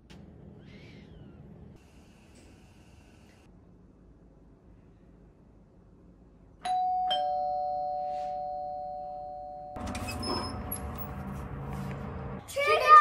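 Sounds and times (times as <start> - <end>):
two-note doorbell chime: 6.6 - 9.8.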